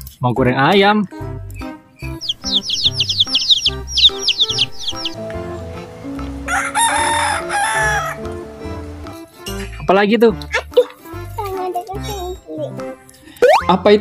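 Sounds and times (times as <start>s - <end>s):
soft background music: 0.0s - 14.0s
high falling bird chirps: 2.0s - 8.4s
rooster crowing: 2.2s - 5.2s, 6.4s - 8.4s.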